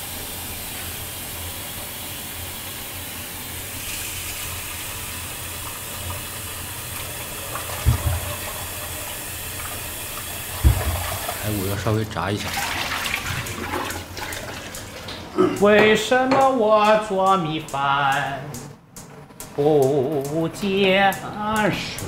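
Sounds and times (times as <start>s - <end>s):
kitchen hiss: 0.0s - 15.3s
dull knock: 7.8s - 8.4s, 10.6s - 11.2s.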